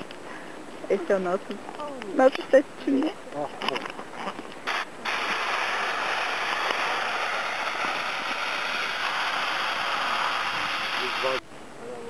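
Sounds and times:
propane burner hissing: 4.0 - 11.4.

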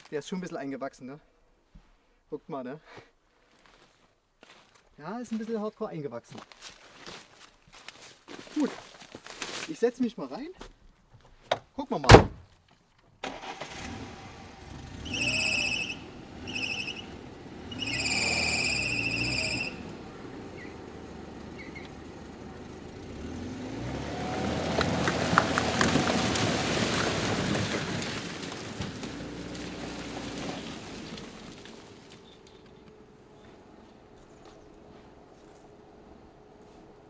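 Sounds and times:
branches breaking: 6.4 - 9.8, 23.8 - 33.0
car engine straining: 13.2 - 37.0
high-pitched squeals: 14.6 - 23.1.

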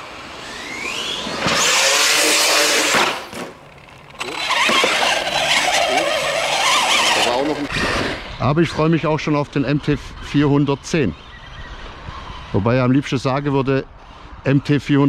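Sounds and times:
electric motor whining: 0.0 - 3.4, 4.1 - 8.4
drivetrain noise: 0.0 - 8.5.

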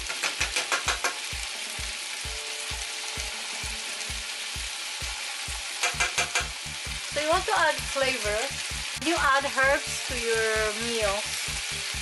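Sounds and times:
potatoes sizzling in a pan: 0.0 - 12.0.

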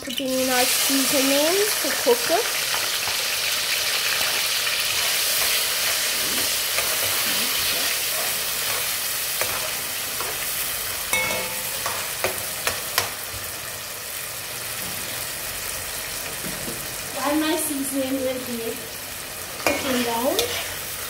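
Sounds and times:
vegetables sizzling in hot oil: 0.0 - 21.0
metal spoon knocking against pot: 11.1 - 11.9.

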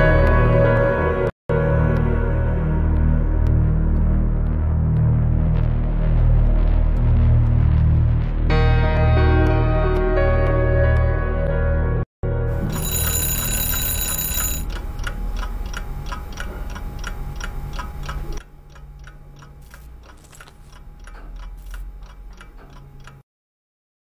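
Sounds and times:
alarm clock ringing: 12.6 - 14.8
clock ticking: 12.7 - 23.2.

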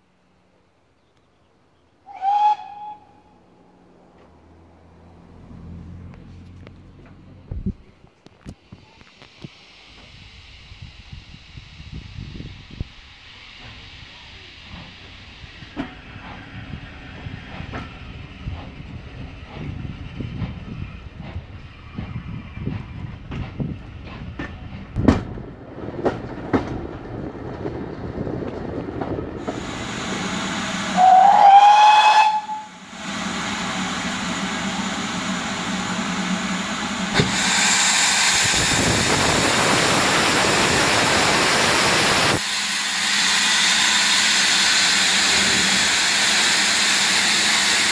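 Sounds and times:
steam whistle blast: 2.1 - 3.4, 29.8 - 33.4
train coaches rolling: 5.3 - 47.9
steam hissing: 8.5 - 23.7, 29.4 - 47.9.

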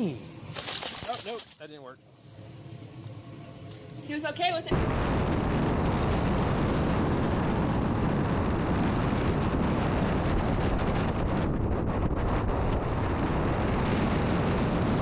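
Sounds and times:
wind over microphone: 4.1 - 15.0.

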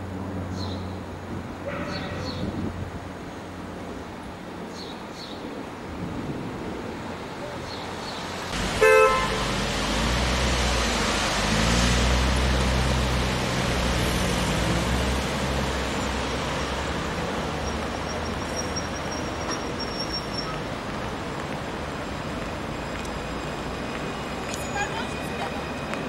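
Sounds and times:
city road traffic: 0.0 - 26.0
heavy vehicle engine hum: 6.4 - 24.8.

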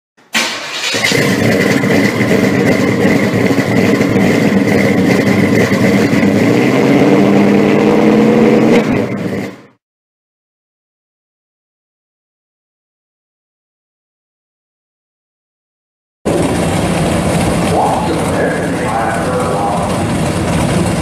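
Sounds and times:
car engine running loudly: 0.4 - 9.8, 16.3 - 21.0.

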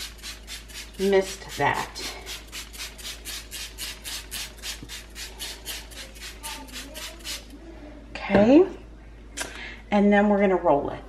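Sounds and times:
spray bottle squirts: 0.0 - 7.5.

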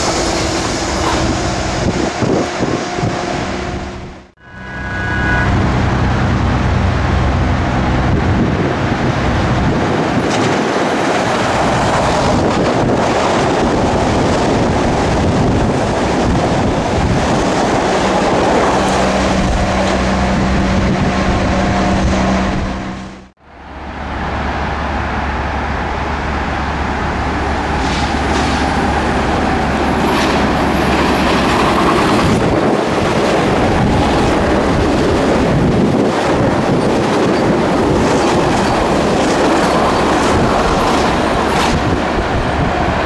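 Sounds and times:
train wheels rumbling on rail: 0.0 - 43.0
low hum: 3.6 - 9.6.

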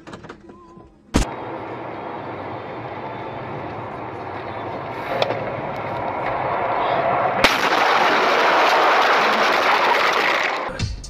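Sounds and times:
car driving noise inside cabin: 1.2 - 7.4
loud bang: 7.4 - 10.7.

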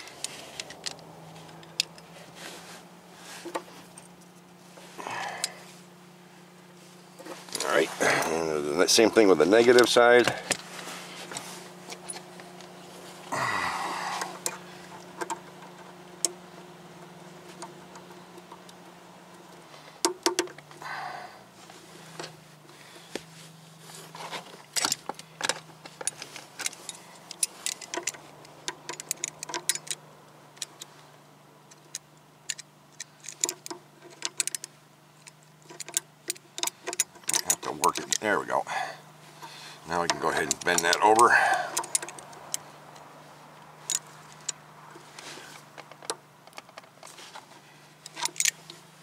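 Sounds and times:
short rustle: 0.0 - 5.0, 5.6 - 15.1, 21.5 - 28.6
pliers working metal clamp: 35.6 - 38.3, 40.0 - 42.6, 48.1 - 48.8.

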